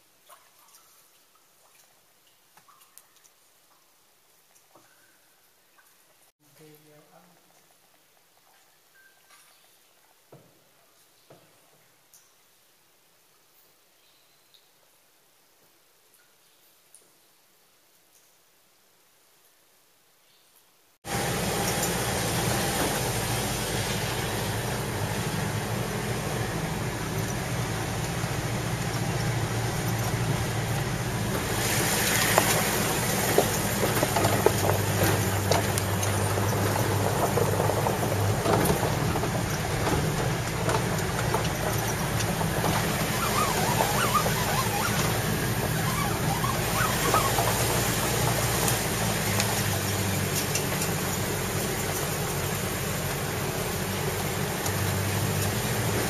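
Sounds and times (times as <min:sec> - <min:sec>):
truck engine and road noise: 0:21.0 - 0:56.0
clattering knocks from bumps: 0:26.7 - 0:51.3.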